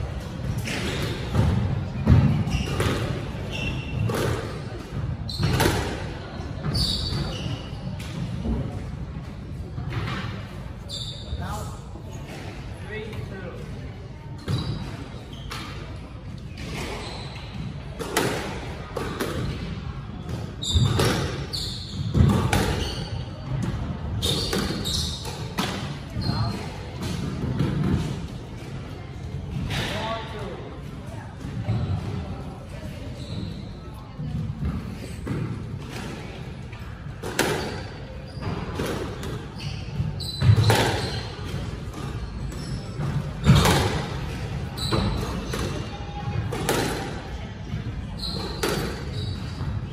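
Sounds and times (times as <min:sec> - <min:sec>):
squash ball hits: 0:00.4 - 0:06.1, 0:18.0 - 0:28.2, 0:37.2 - 0:39.4, 0:40.0 - 0:42.2, 0:43.0 - 0:47.2, 0:48.3 - 0:49.8
shoes squeaking on wooden floor: 0:00.9 - 0:04.3, 0:06.6 - 0:07.9, 0:10.9 - 0:11.7, 0:16.5 - 0:17.8, 0:20.2 - 0:23.6, 0:24.2 - 0:26.8, 0:33.1 - 0:33.8, 0:37.6 - 0:45.5, 0:48.1 - 0:49.9.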